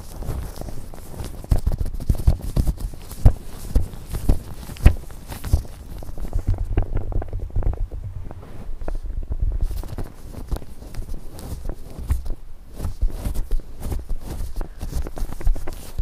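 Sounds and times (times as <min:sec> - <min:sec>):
gloved fingers crackling clicks: 0:00.0 - 0:09.0
soft low thuds: 0:01.5 - 0:15.7.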